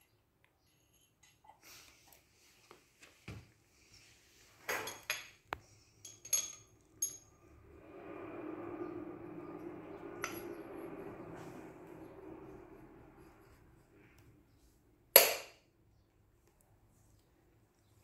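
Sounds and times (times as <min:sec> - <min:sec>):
metallic clinks of engine valves: 0:06.0 - 0:07.3
steady droning noise: 0:06.4 - 0:14.7.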